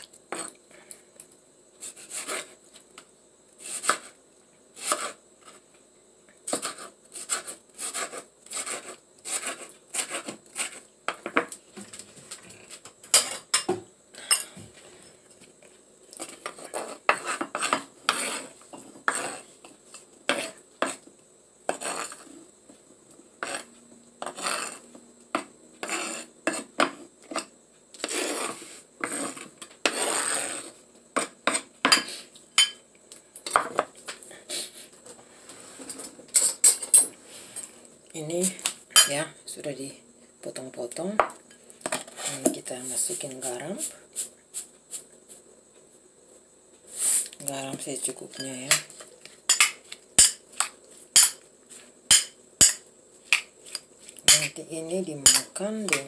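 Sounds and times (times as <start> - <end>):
knife scraping across board: 1.8 - 2.6, 3.6 - 4.2, 4.8 - 5.6, 6.5 - 10.8, 16.2 - 19.5, 20.3 - 21.0, 21.7 - 22.4, 23.4 - 24.9, 25.8 - 32.2.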